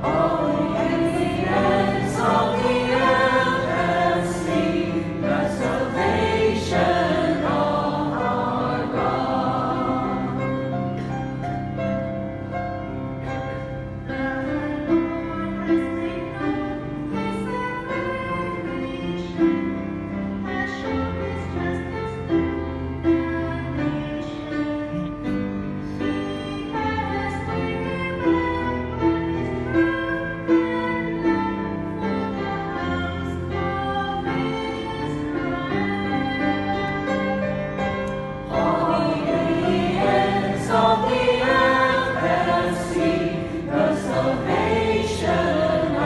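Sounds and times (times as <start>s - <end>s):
choir singing: 0.0s - 11.1s, 38.5s - 46.0s
instrumental accompaniment: 0.0s - 46.0s.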